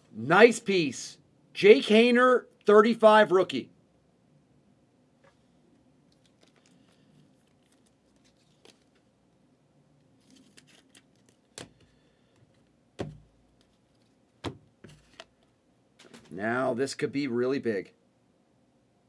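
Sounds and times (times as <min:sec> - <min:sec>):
cards and plastic sleeve rustling: 0:06.1 - 0:09.2, 0:10.1 - 0:16.4.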